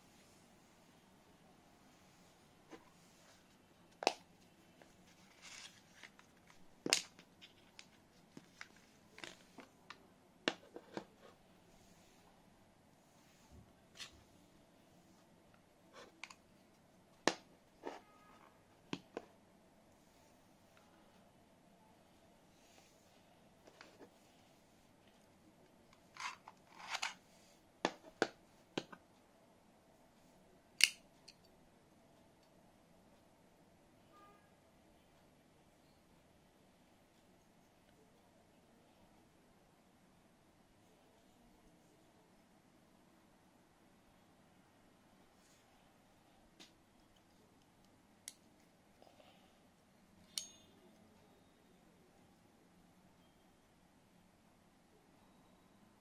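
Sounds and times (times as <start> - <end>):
folding knife metal clicks: 30.8 - 31.4.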